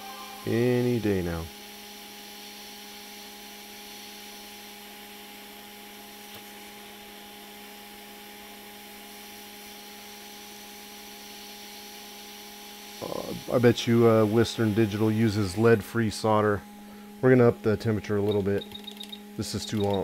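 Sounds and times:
blower hum: 0:00.0 - 0:20.0
hot air station hissing: 0:12.8 - 0:17.3.

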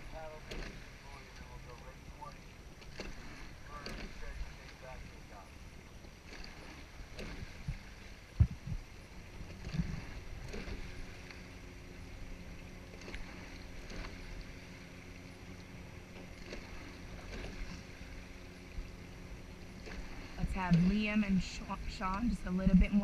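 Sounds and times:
oars splashing: 0:00.0 - 0:23.0
water rushing along hull: 0:00.0 - 0:23.0
oars knocking in oarlocks: 0:06.2 - 0:11.4.

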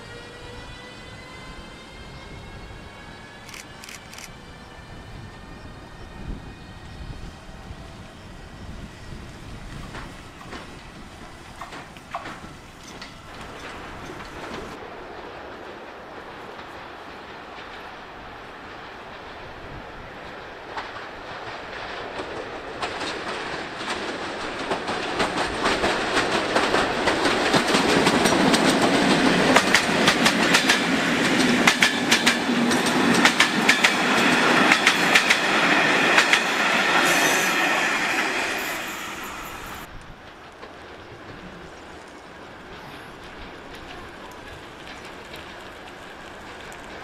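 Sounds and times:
train wheels clacking over track: 0:08.7 - 0:14.8, 0:16.2 - 0:47.0.

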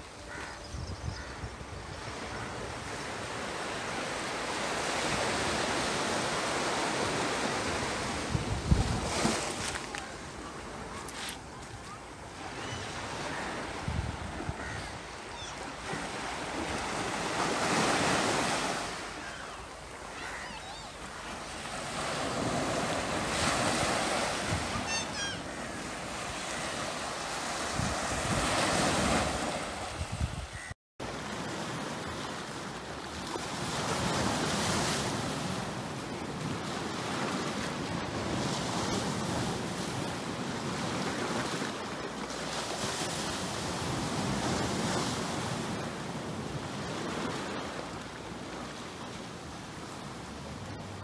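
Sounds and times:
sea waves breaking on shore: 0:02.4 - 0:51.0
wind buffeting microphone: 0:08.0 - 0:09.4.

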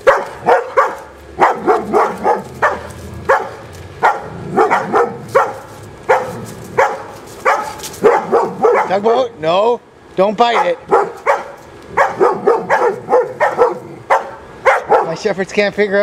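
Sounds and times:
dog barking: 0:00.0 - 0:09.3, 0:10.4 - 0:15.2.

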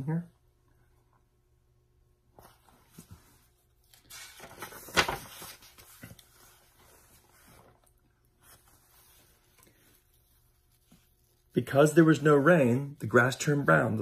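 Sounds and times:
book pages turning: 0:02.4 - 0:12.5.

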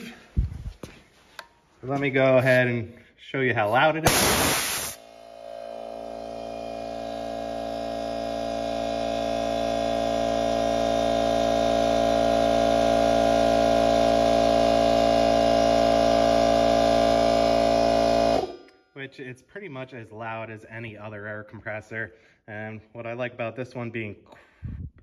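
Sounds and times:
air compressor running: 0:03.7 - 0:18.6.

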